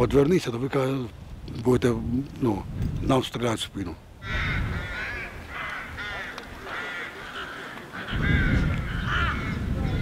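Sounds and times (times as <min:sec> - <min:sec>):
crows cawing: 0:04.2 - 0:10.0.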